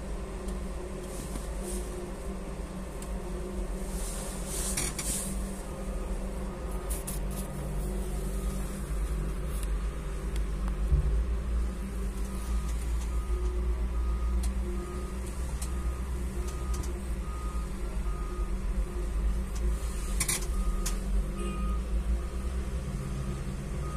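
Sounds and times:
muffled diesel engine running: 0.0 - 23.9
reversing alarm beeps: 8.1 - 9.1, 12.4 - 18.7, 20.1 - 23.9.

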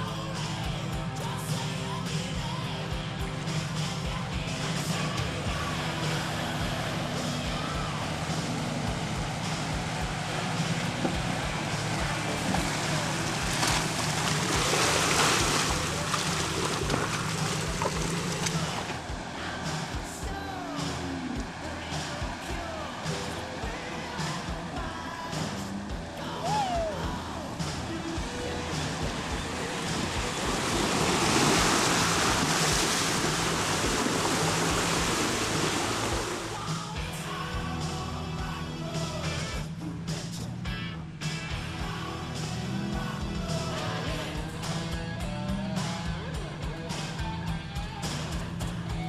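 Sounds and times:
background music: 0.0 - 49.0
truck engine humming: 0.0 - 49.0
water splashing around tyres: 8.1 - 24.8, 27.4 - 36.7.

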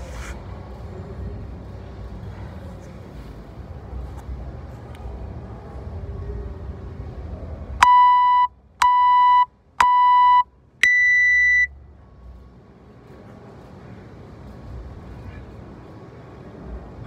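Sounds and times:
longer higher beep: 7.8 - 11.7
short timer beeps: 7.8 - 11.7.

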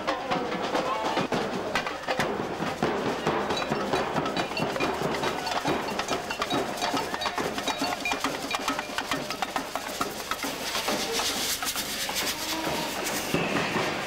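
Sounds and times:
samba drums and percussion: 0.0 - 14.0.

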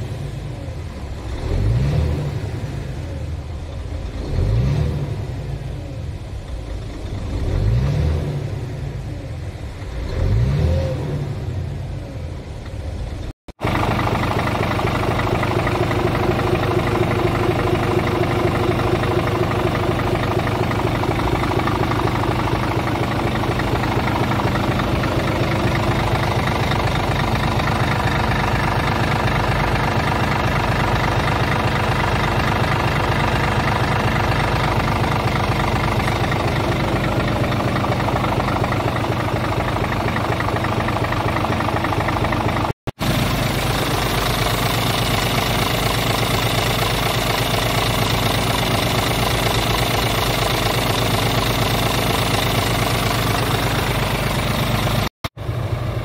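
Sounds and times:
diesel engine idling: 12.9 - 56.0.

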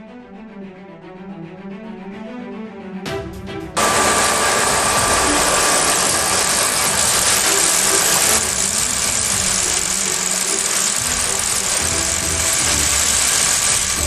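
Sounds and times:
metal machining noise: 3.8 - 14.0.

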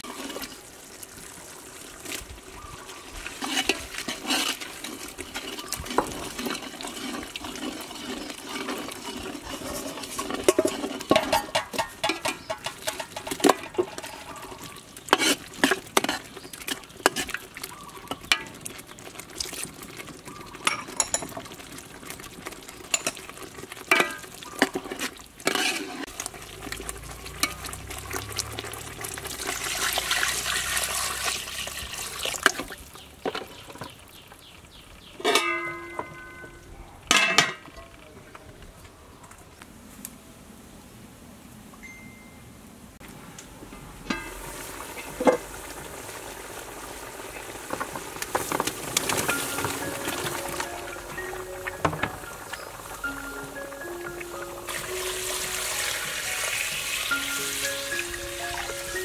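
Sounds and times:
ladle knocking metal pot: 10.0 - 16.2, 20.6 - 21.5, 23.9 - 24.9, 35.2 - 37.7, 49.0 - 52.7
liquid pouring into pot: 15.6 - 32.9, 54.6 - 59.0.

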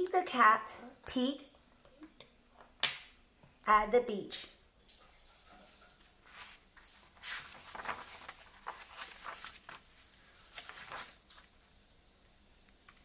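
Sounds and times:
book pages rustling: 6.2 - 11.6.

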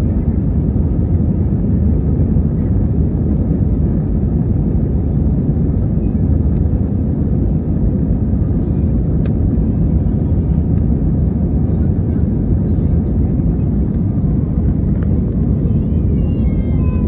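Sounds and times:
airliner engine rumble: 0.0 - 17.0.

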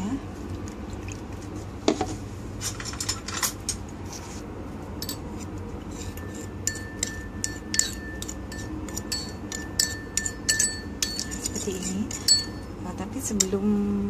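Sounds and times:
metal spoon clinking in a bowl: 5.0 - 5.3, 6.0 - 13.6.

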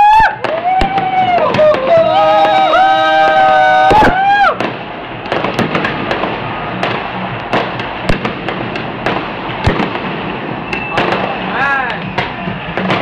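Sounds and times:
fireworks crackling and popping: 0.0 - 13.0
fireworks sharp bangs: 0.2 - 13.0.

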